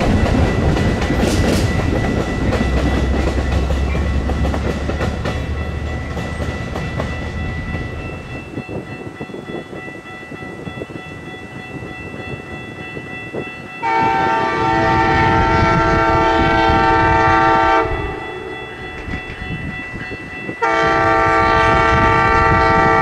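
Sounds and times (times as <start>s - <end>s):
wheels clicking over rail joints: 0.0s - 9.2s
train rumble: 0.0s - 23.0s
high ringing tone: 0.1s - 23.0s.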